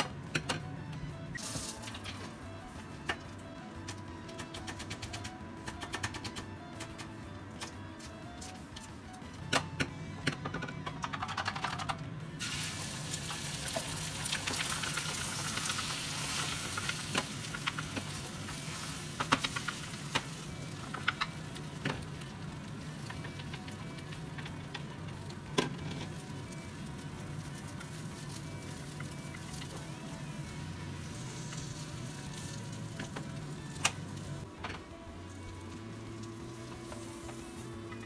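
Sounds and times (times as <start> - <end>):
egg sizzling in frying pan: 12.4 - 23.8.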